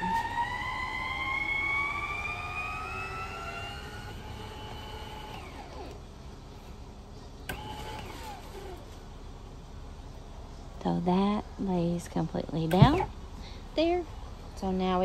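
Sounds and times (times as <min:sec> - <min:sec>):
siren wailing: 0:00.0 - 0:04.2.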